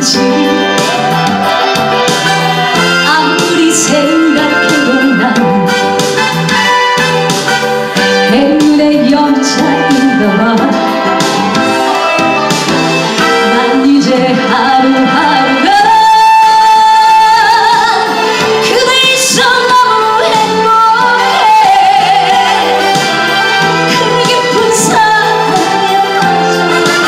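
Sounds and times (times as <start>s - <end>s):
woman singing into microphone: 0.0s - 1.1s, 2.9s - 5.8s, 8.2s - 11.1s, 13.2s - 27.0s
amplified backing track: 0.0s - 27.0s.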